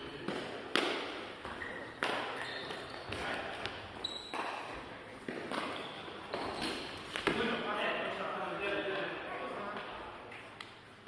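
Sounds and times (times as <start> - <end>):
shoe squeak: 1.4 - 3.4, 4.0 - 4.8, 5.5 - 7.0.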